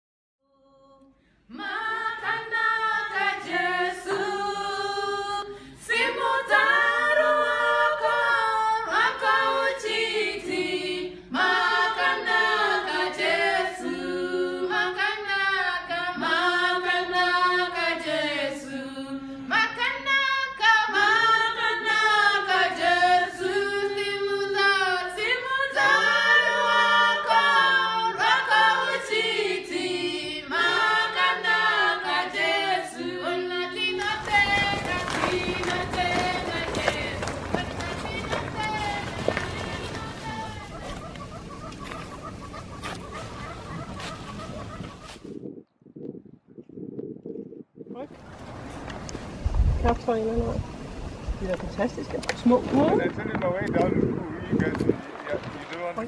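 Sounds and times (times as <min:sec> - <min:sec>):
choir singing a cappella: 0:00.5 - 0:44.9.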